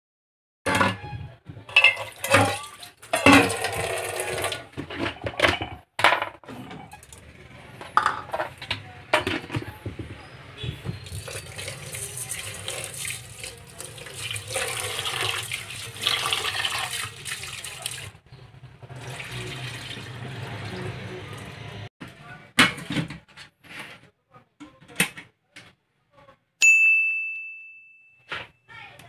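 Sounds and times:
metal pot clanking in sink: 0.7s - 6.4s, 7.9s - 10.2s
tap water running into pot: 11.0s - 18.2s, 18.9s - 21.5s.

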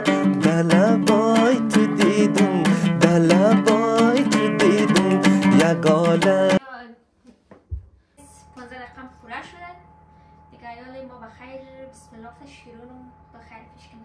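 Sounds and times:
sliding melody line: 0.0s - 6.6s
strummed plucked string instrument: 0.0s - 6.6s.

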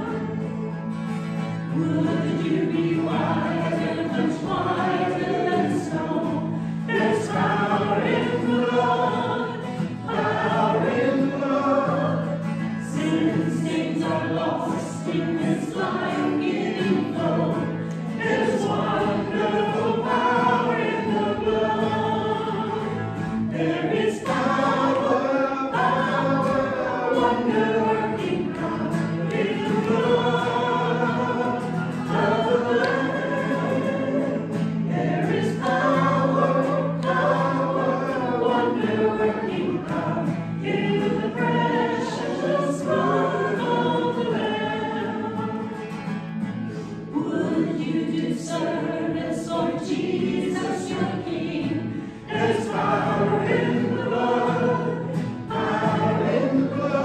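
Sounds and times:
small choir singing: 0.0s - 57.0s.

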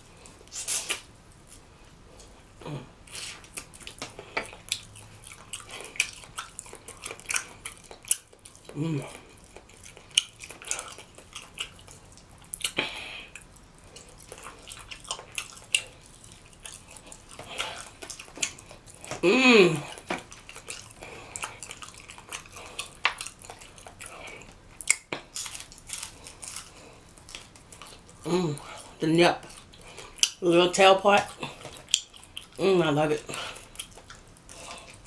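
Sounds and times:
wet chewing and lip-smacking: 0.1s - 35.0s
person humming with enjoyment: 8.7s - 9.2s, 19.2s - 19.9s, 28.3s - 28.6s.

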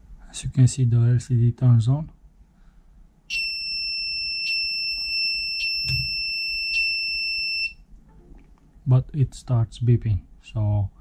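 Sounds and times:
continuous high-pitched beep: 3.3s - 7.8s.

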